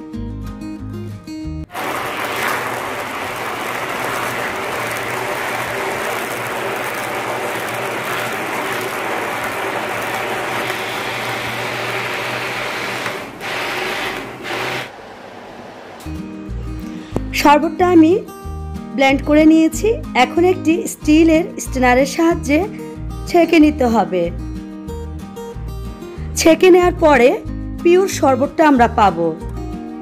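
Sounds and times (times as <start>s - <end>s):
hand blender chopping in water: 1.7s - 14.9s.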